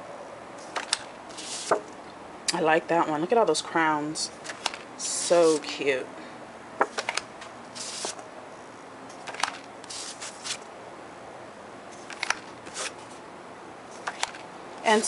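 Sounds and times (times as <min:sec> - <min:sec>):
paper rustling: 0:00.6 - 0:01.8, 0:04.4 - 0:05.6, 0:06.8 - 0:08.2, 0:09.2 - 0:10.7, 0:11.9 - 0:13.2.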